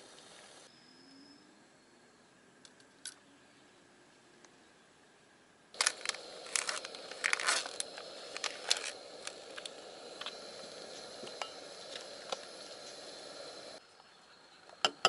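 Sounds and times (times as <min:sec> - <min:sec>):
background hiss: 0:00.0 - 0:02.7, 0:03.3 - 0:15.0
plastic tray crinkling: 0:05.8 - 0:09.7.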